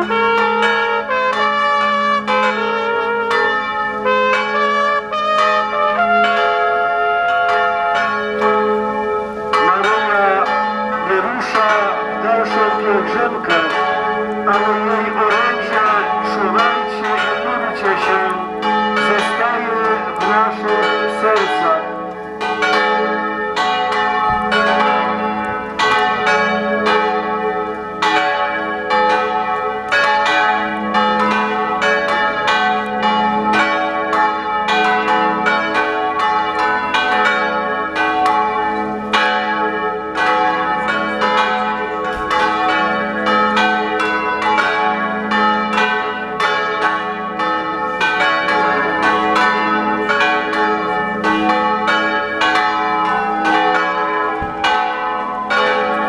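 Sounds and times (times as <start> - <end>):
church bells pealing: 0.0 - 56.0.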